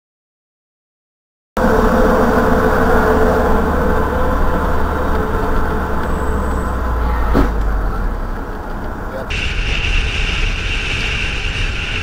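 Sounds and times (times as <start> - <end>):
car engine and road rumble: 1.6 - 12.0.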